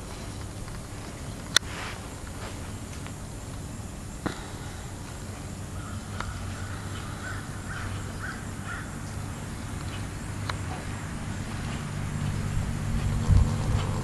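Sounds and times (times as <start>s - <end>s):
steady low hum: 0.0s - 14.0s
bird cawing: 4.2s - 10.8s.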